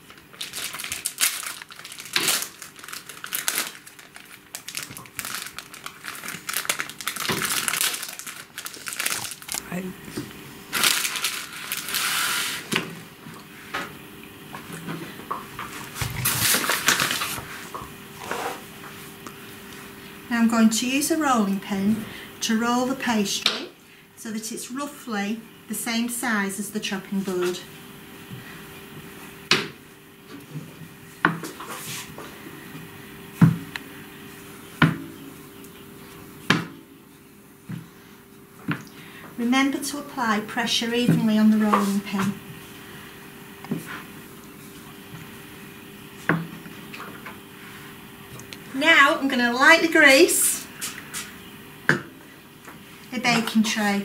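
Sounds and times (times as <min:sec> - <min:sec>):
food packaging crinkling: 0:00.0 - 0:09.8, 0:10.7 - 0:12.6, 0:16.1 - 0:17.5
flour bag rustling: 0:00.0 - 0:09.9, 0:10.6 - 0:12.7
faint steady hum: 0:00.0 - 0:54.0.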